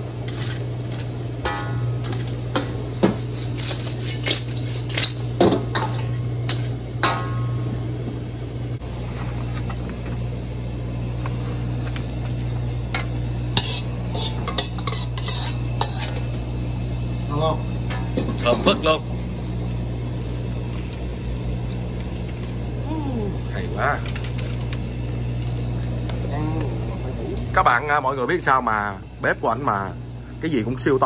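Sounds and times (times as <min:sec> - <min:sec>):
steady low hum: 0:00.0 - 0:31.0
pots and dishes clattering: 0:01.4 - 0:07.6, 0:12.9 - 0:16.4, 0:17.8 - 0:18.9.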